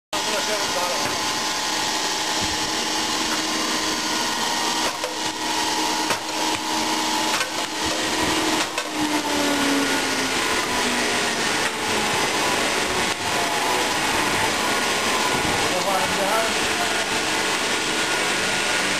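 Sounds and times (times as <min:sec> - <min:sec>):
stone-splitting press whirring: 0:00.2 - 0:18.9.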